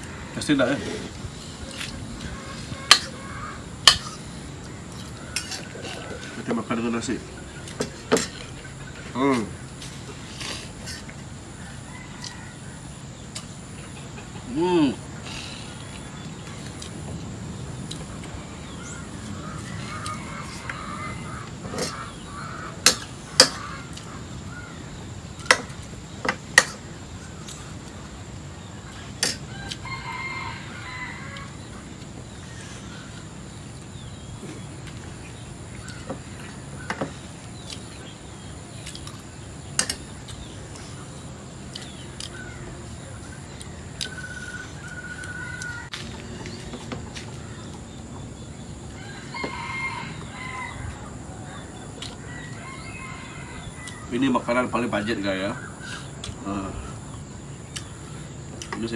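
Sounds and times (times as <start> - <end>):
chickens clucking: 0.0 - 58.9
rooster crowing: 11.6 - 13.0, 29.4 - 31.8, 44.0 - 46.2, 48.9 - 54.5.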